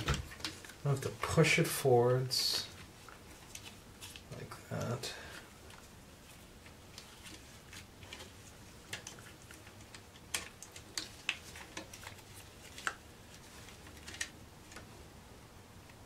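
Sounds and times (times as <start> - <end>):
plastic parts and wires clicking: 0.0 - 0.8, 6.6 - 14.9.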